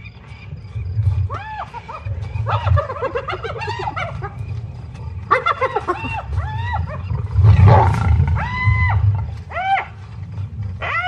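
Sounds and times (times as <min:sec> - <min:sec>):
hyenas yelping: 0:01.0 - 0:11.0
lioness growling and snarling: 0:06.4 - 0:09.5.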